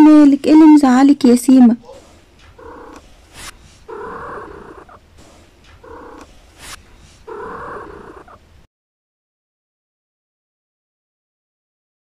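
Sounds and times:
cat purring: 1.8 - 8.7.

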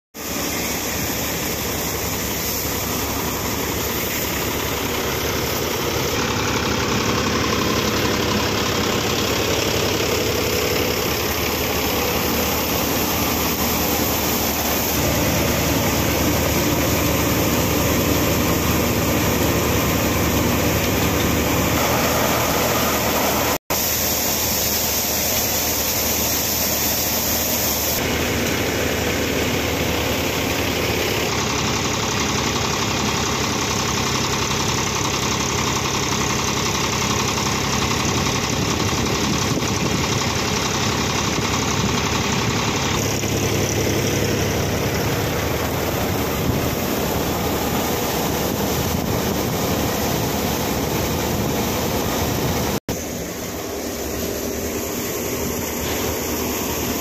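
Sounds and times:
tractor engine running: 0.2 - 57.0
thresher drum mechanical din: 0.3 - 23.8.

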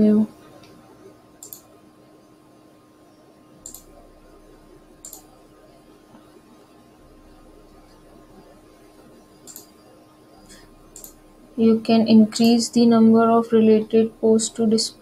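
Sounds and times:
faint electrical hum: 0.0 - 15.0
computer mouse clicks: 1.4 - 1.7, 3.6 - 4.0, 5.0 - 5.3, 9.4 - 9.8, 10.9 - 11.2, 12.4 - 12.6.

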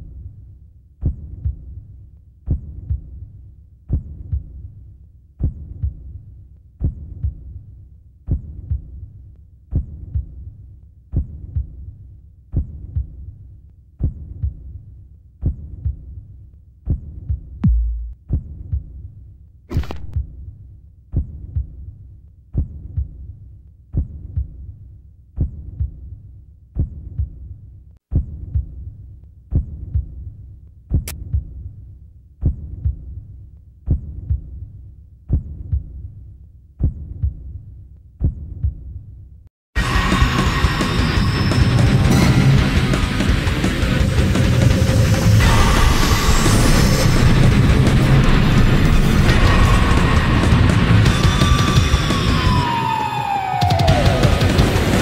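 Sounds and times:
heartbeat double thumps: 1.0 - 1.8, 2.5 - 4.8, 5.4 - 6.2, 6.8 - 7.6, 8.3 - 9.1, 9.7 - 10.5, 11.1 - 11.9, 14.0 - 14.8, 15.4 - 16.2, 16.9 - 19.0, 19.7 - 20.4, 25.4 - 26.1, 26.8 - 27.5, 28.1 - 28.9, 29.5 - 30.3, 30.9 - 31.7, 32.4 - 33.3, 33.9 - 34.6, 35.3 - 36.1, 36.8 - 37.6, 38.2 - 39.0
low hum: 17.6 - 18.2.

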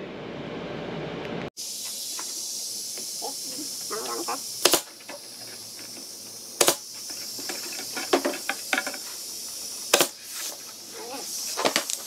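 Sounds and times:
steady high hiss: 1.6 - 12.0
nail gun firing: 4.6 - 4.9, 6.6 - 6.8.

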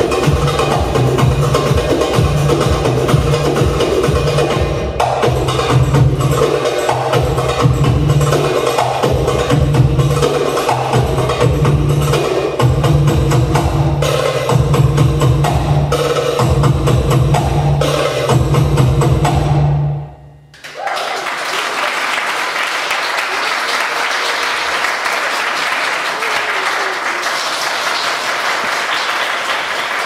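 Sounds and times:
belly dance music with drumming: 0.0 - 20.2
audience applauding: 20.6 - 30.0.

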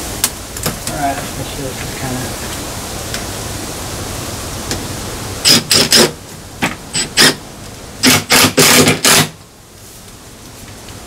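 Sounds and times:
cordless drill driving screw into metal: 5.4 - 6.1, 7.0 - 7.4, 8.0 - 9.4.

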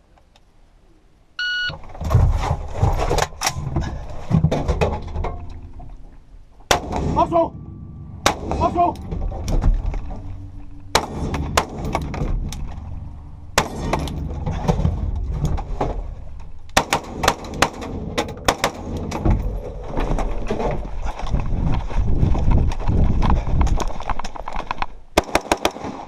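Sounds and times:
steady low rumble: 0.0 - 25.4
knocks and clatter on metal floor: 1.8 - 5.9, 7.6 - 13.0, 13.6 - 16.3, 17.2 - 21.7
rifle shots: 10.9 - 12.2, 13.6 - 14.2, 16.8 - 19.2, 25.2 - 26.0.

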